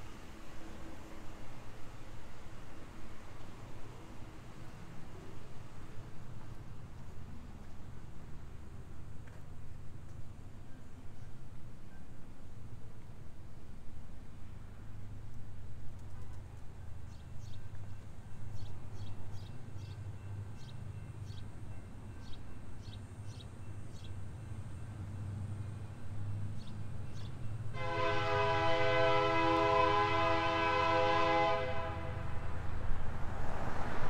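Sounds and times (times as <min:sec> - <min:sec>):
locomotive air horn: 0:27.8 - 0:32.5.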